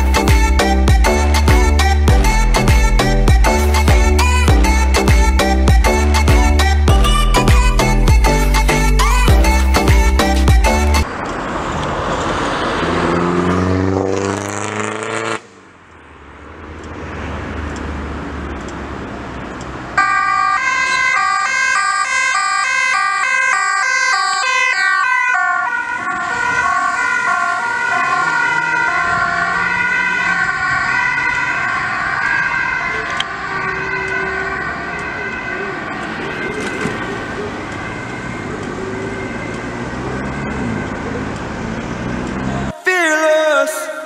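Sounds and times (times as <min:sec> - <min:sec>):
traffic passing: 0:00.0 - 0:44.0
two-tone ambulance siren: 0:20.0 - 0:42.8.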